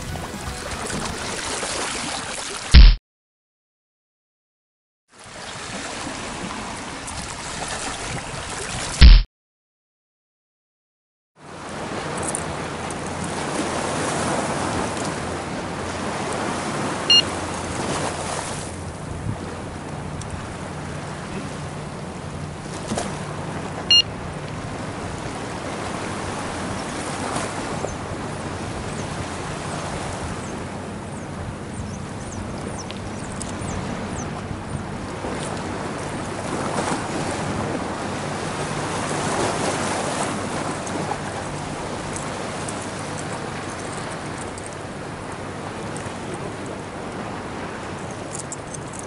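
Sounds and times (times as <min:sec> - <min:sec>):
waves lapping against seawall: 0:00.0 - 0:02.8, 0:05.2 - 0:09.0, 0:11.5 - 0:49.0
sharp high-pitched chirp: 0:02.8 - 0:03.0.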